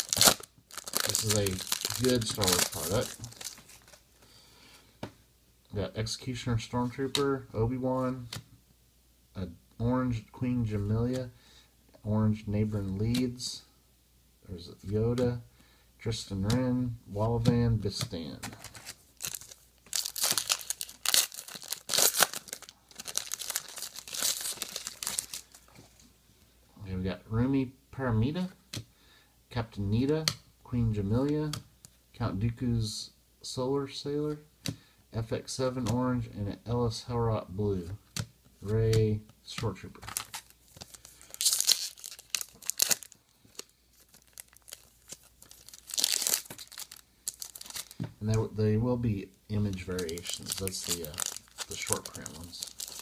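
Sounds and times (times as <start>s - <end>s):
foil wrapper crinkling: 0.0s - 4.0s, 18.5s - 25.7s, 40.0s - 48.0s, 49.7s - 53.0s.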